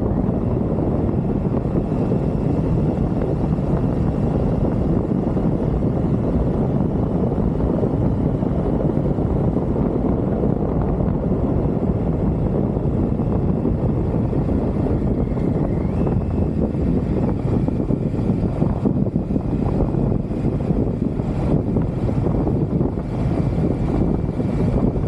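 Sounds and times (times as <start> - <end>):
motorcycle engine rumbling: 0.0 - 25.0
wind on microphone: 0.0 - 25.0.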